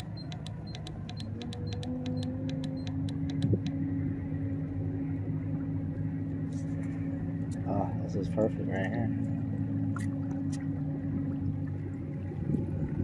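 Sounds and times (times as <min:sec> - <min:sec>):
rapid ticking: 0:00.0 - 0:03.8
kayak drive low drone: 0:00.0 - 0:13.0.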